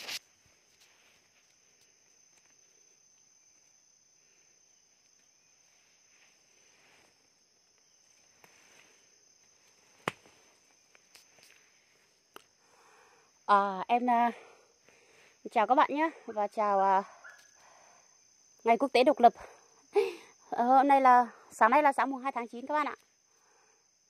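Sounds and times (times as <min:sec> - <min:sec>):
leaf litter rustling underfoot: 0:00.0 - 0:01.8
insects trilling: 0:00.0 - 0:24.0.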